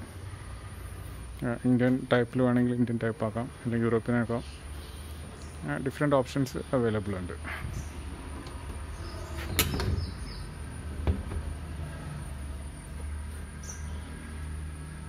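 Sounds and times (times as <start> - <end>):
steady low hum: 0.0 - 15.0
cabin door knocking shut: 11.0 - 11.5.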